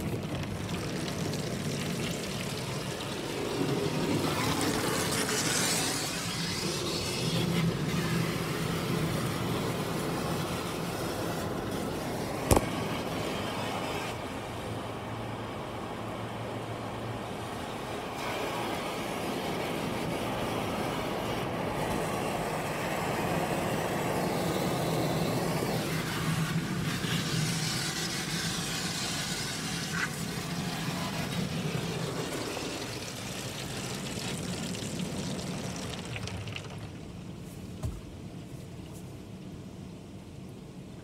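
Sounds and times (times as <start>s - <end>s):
water spraying onto car: 0.0s - 16.2s, 17.1s - 39.6s
foam brushes scrubbing car: 3.2s - 12.6s, 18.2s - 34.6s.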